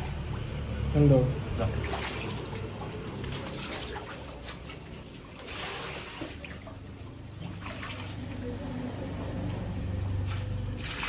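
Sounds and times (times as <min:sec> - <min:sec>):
muddy water splashing and trickling: 0:00.0 - 0:11.0.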